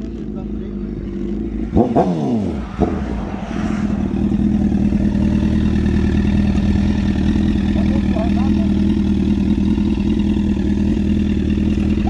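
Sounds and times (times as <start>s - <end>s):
motorcycle engine idling: 0.0s - 2.2s, 4.0s - 12.0s
motorcycle throttle blips: 4.0s - 12.0s.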